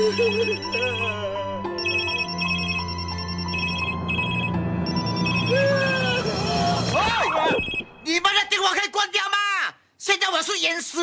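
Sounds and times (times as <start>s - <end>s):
slow sad background music: 0.0s - 7.0s
phone ringtones beeping: 0.0s - 7.9s.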